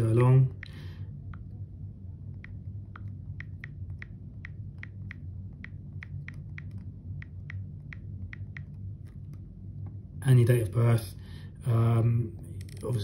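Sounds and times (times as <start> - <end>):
low steady hum: 0.0 - 13.0
on-screen keyboard clicking: 2.3 - 9.4.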